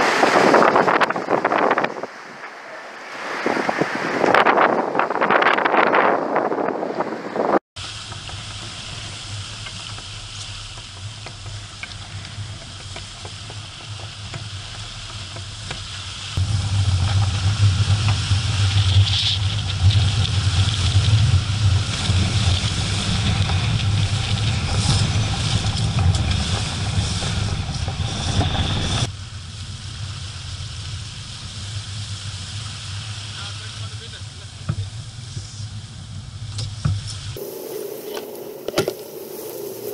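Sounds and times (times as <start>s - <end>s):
wind rumbling on microphone: 0.0s - 39.9s
water hissing along boat hull: 7.8s - 29.1s, 30.2s - 39.9s
low rumble with spray hiss: 7.8s - 39.9s.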